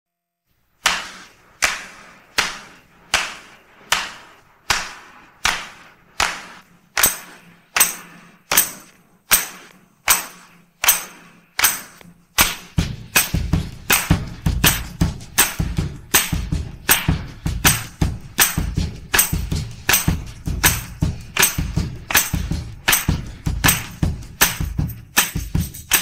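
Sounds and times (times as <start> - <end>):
sharp backbeat drum hits: 12.4 - 26.0.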